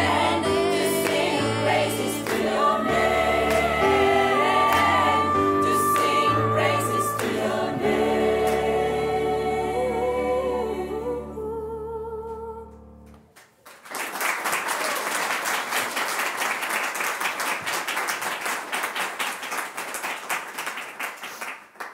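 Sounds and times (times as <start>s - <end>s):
gospel choir singing: 0.0s - 12.7s
audience applauding: 0.9s - 7.7s, 13.4s - 21.9s.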